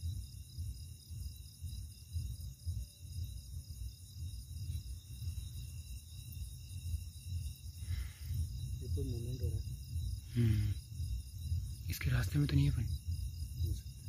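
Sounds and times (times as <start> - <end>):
night insects chirring: 0.0 - 14.0.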